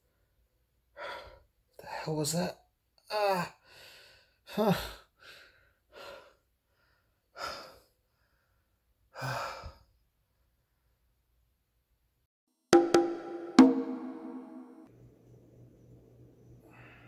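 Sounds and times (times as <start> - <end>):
person breathing heavily: 3.6 - 10.0.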